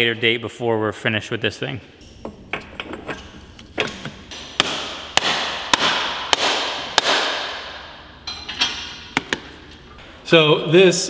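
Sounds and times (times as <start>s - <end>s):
hammer striking metal: 2.1s - 9.4s.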